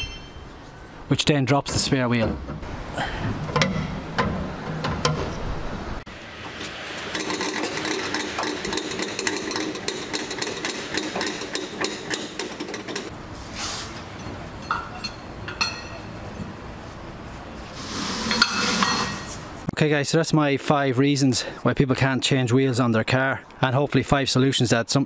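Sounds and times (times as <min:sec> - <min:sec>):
winch rapid mechanical clicking: 0:07.1 - 0:13.1.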